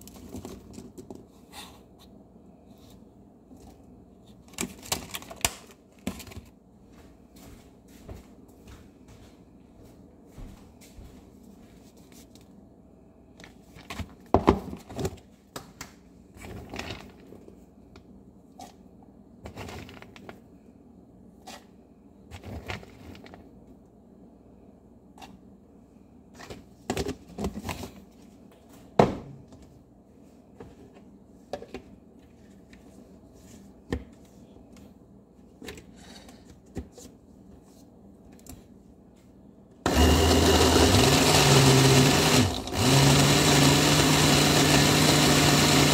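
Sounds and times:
blender motor running: 39.9 - 45.9.

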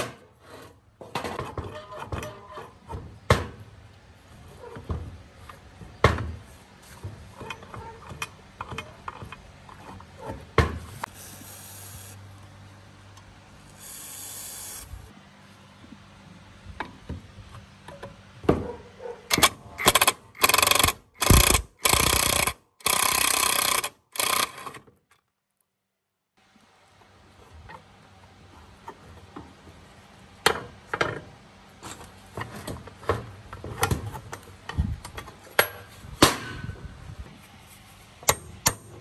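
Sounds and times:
impact driver hammering: 19.3 - 24.5.

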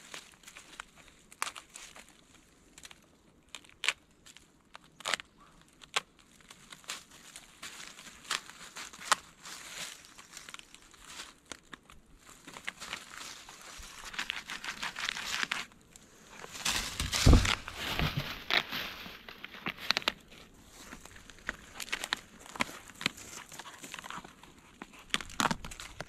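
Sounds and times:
bark crackling and tearing: 0.0 - 26.0
heavy thump: 16.6 - 18.4.

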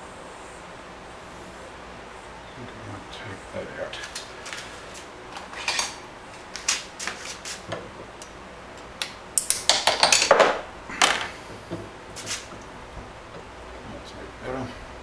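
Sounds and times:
steel parts clinking and rattling: 5.3 - 6.0, 9.4 - 11.3.

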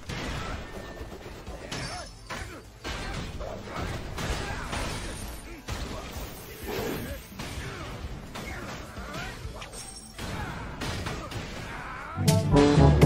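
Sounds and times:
background music: 0.0 - 13.0.

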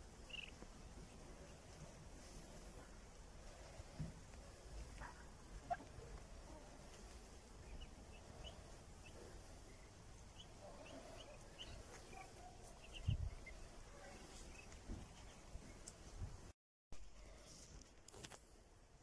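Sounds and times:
ducklings peeping: 0.0 - 15.9.

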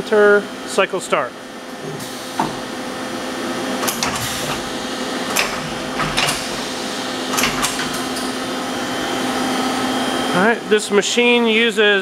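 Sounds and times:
machine humming: 1.5 - 12.0
tool changer mechanical clunks: 1.8 - 2.8, 3.8 - 8.4.

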